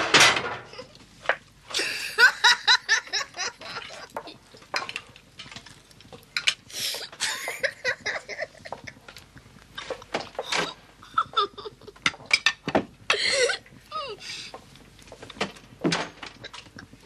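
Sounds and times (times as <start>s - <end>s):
boy giggling: 1.8s - 4.4s, 7.2s - 9.0s, 11.0s - 12.0s, 13.1s - 14.3s.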